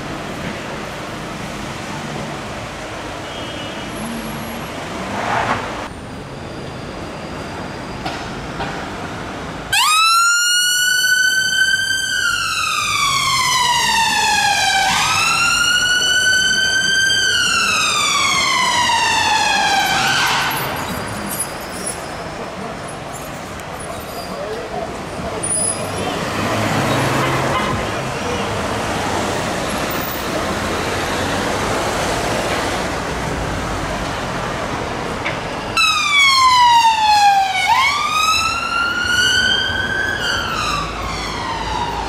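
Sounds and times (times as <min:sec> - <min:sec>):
road traffic: 0:00.0 - 0:42.0
emergency siren wailing: 0:09.7 - 0:20.8, 0:35.8 - 0:42.0.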